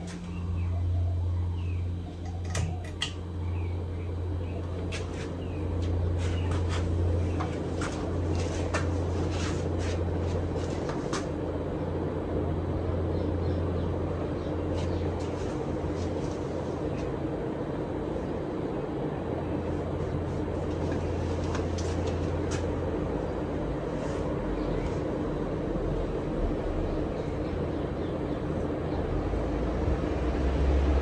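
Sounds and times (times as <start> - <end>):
ceiling fan motor hum: 0.0 - 31.0.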